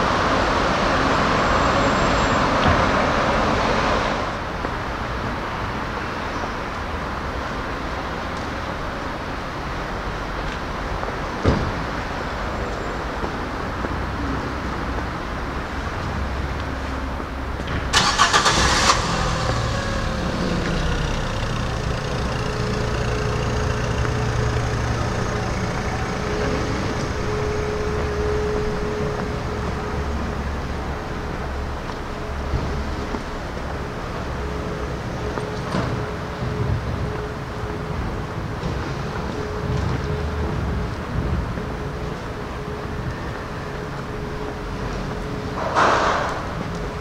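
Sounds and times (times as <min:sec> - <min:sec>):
street noise hum: 0:00.0 - 0:47.0
car starter cranking: 0:17.9 - 0:25.0
car engine idling: 0:17.9 - 0:32.3.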